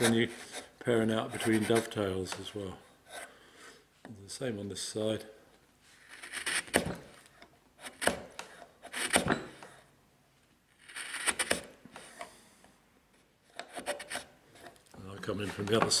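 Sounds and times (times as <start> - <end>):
chisel paring wood: 6.1 - 9.7, 10.8 - 11.8, 13.5 - 14.3.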